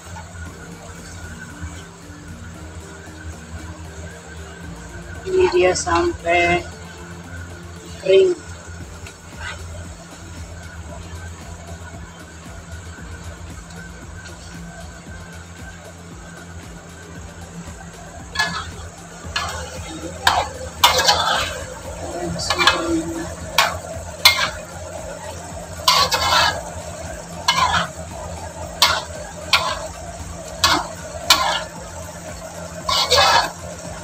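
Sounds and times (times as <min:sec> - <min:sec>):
food sizzling: 0:00.0 - 0:34.0
metal spatula scraping a wok: 0:07.8 - 0:11.9, 0:17.5 - 0:34.0.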